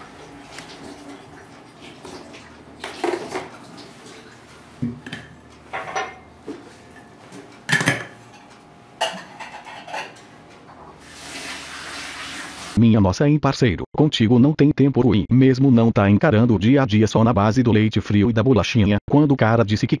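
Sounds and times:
kitchen items knocking and clinking: 2.8s - 3.9s, 4.8s - 10.7s.

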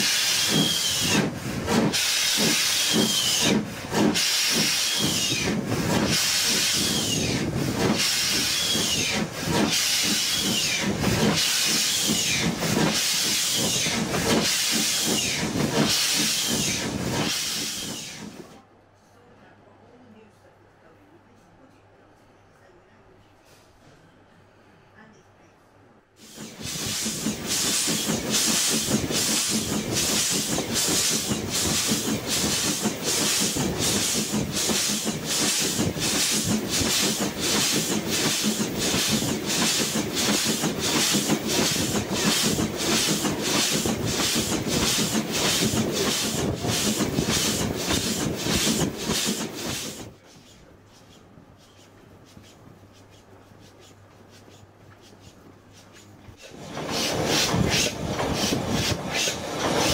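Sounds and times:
locomotive exhaust beats: 0.0s - 18.3s, 26.3s - 51.8s
steam locomotive hiss: 0.0s - 18.6s, 26.2s - 59.9s.

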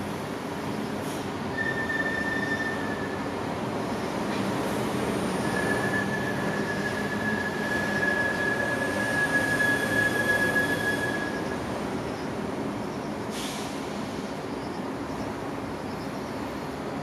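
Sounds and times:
thin high squeal: 1.6s - 3.2s, 5.4s - 11.6s.

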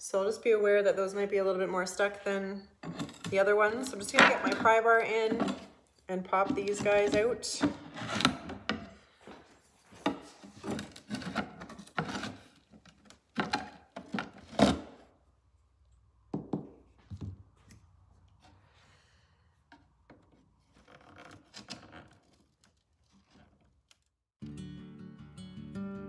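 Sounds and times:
wood creaking: 19.7s - 24.1s.

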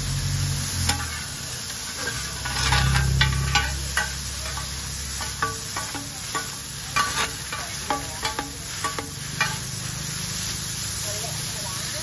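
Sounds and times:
noodles sizzling: 0.0s - 12.0s
metal spatulas clinking on pan: 0.9s - 1.3s, 1.9s - 9.8s.

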